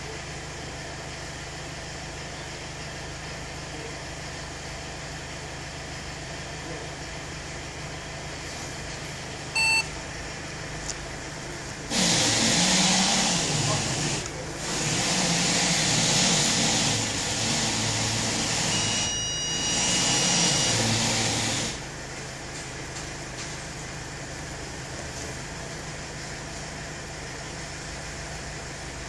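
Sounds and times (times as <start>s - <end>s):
car idling: 0.0s - 14.8s, 21.7s - 29.0s
steady hum: 8.2s - 14.8s
high electronic tone: 9.6s - 9.9s, 18.6s - 21.0s.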